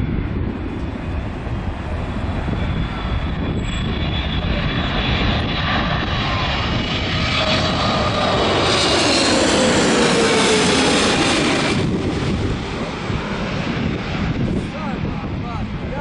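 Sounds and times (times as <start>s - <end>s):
jet engines on approach: 0.0s - 16.0s.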